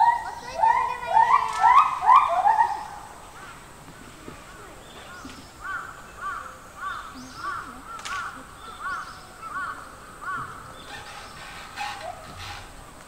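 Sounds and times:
bird calling: 0.0 - 12.9.

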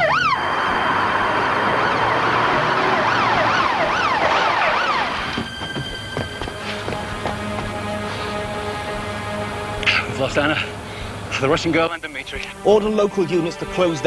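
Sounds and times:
siren yelping: 0.0 - 6.5
hissing street noise: 0.0 - 14.0
music with held notes: 5.2 - 14.0.

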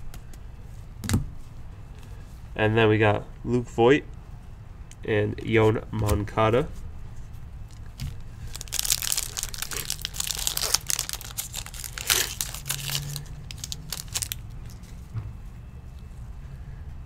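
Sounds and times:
plastic wrapper crinkling and tearing: 7.7 - 14.9.

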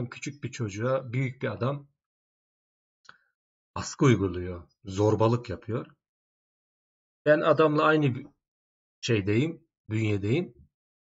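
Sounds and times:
man speaking: 0.0 - 1.9, 3.8 - 6.0, 7.3 - 8.4, 9.0 - 10.6.

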